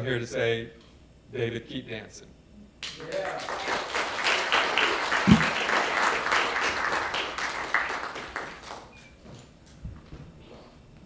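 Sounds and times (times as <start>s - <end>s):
audience applauding: 2.8s - 9.0s.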